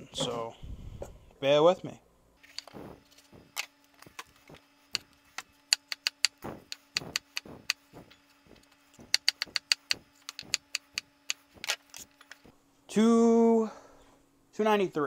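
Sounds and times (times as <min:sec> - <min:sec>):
knife chopping on wooden board: 0:05.8 - 0:11.7.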